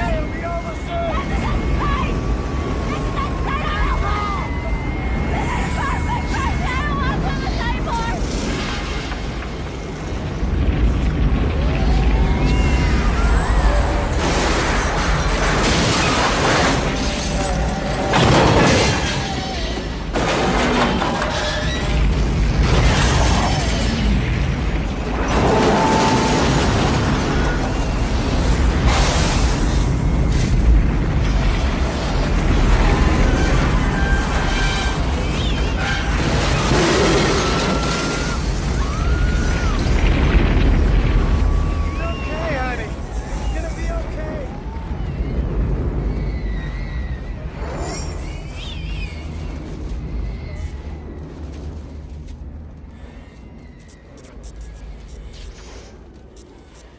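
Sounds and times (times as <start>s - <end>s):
roaring wind: 0.0s - 56.9s
crashing and shattering debris: 6.7s - 46.0s
booms: 7.6s - 48.2s
deep wind roar: 44.4s - 56.9s
electrical sparking: 53.8s - 56.9s.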